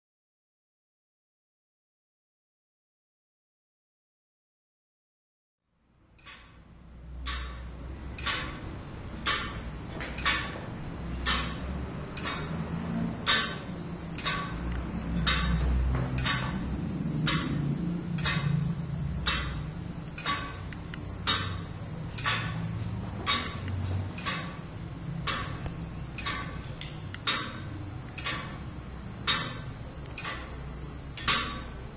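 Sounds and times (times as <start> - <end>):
clock ticking: 6.2 - 6.6, 7.2 - 31.9.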